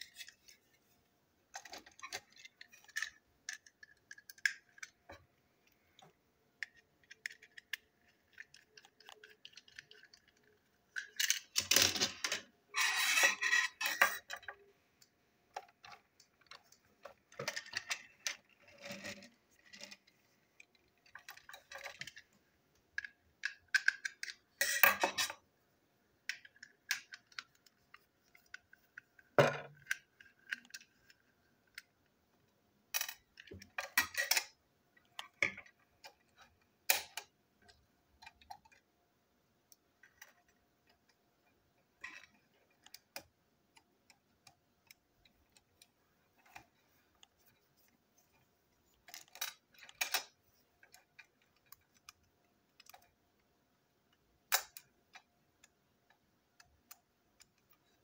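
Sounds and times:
plastic parts clattering on table: 0:06.7 - 0:14.6.

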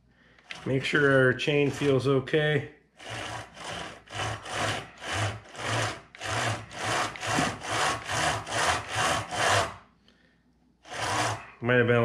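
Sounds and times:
chain scraping over chainsaw bar: 0:00.5 - 0:02.3, 0:03.0 - 0:09.8, 0:10.9 - 0:11.6.

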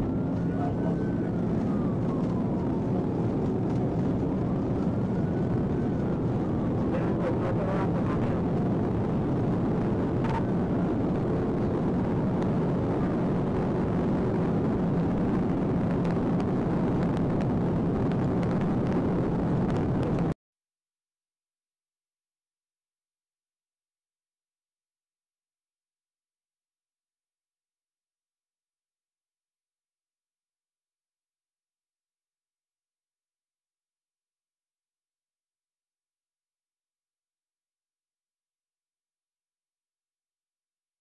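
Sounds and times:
faint siren wail: 0:00.0 - 0:15.4
tyre and wind noise: 0:08.1 - 0:20.4.

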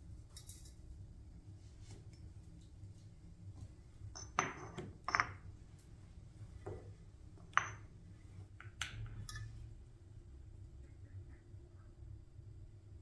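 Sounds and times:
hard objects knocking and clinking: 0:04.1 - 0:05.5, 0:06.6 - 0:08.0.

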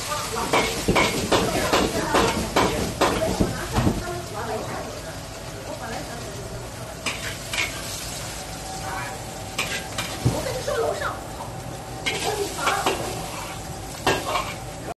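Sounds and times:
ladle clanking on wok: 0:00.0 - 0:04.1, 0:07.0 - 0:08.2, 0:09.4 - 0:10.6, 0:11.4 - 0:14.9
food sizzling in a wok: 0:00.0 - 0:15.0
steady hum: 0:00.0 - 0:15.0
ladle scraping wok: 0:06.8 - 0:14.9.

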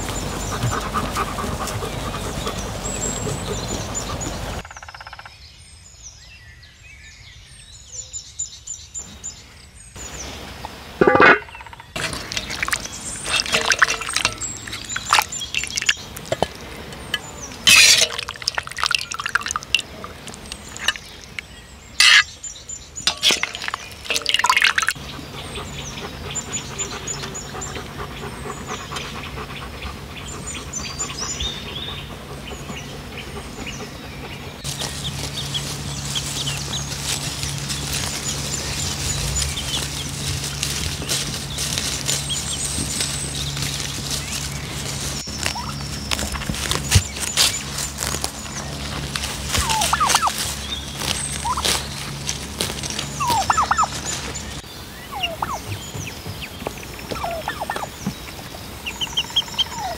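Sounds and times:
small birds chirping: 0:00.0 - 0:10.8, 0:11.4 - 0:59.9
metal spatula scraping a pot: 0:17.7 - 0:18.7, 0:22.0 - 0:22.3.

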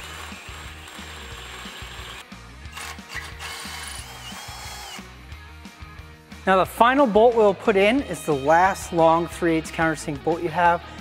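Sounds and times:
cordless drill drilling steel: 0:00.0 - 0:05.1
background music with steady beat: 0:00.0 - 0:11.0.

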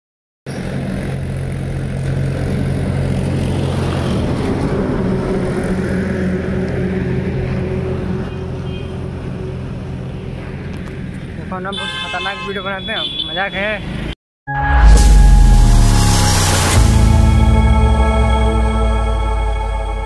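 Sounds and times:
tractor engine driving past: 0:00.5 - 0:11.5.

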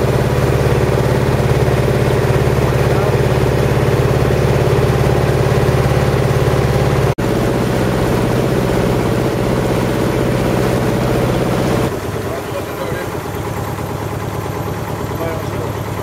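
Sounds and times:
motorboat engine running: 0:00.0 - 0:16.0
water churning in wake: 0:00.0 - 0:16.0.

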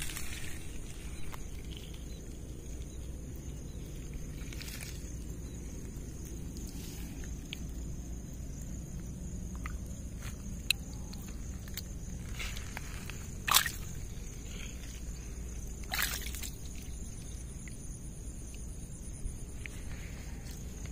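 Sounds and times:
steady low rumble: 0:00.0 - 0:20.9
splashes in shallow water: 0:13.4 - 0:14.1, 0:15.8 - 0:17.0.

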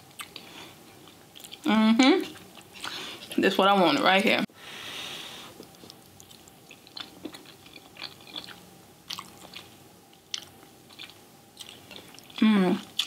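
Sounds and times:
wet chewing mouth sounds: 0:05.6 - 0:13.0.

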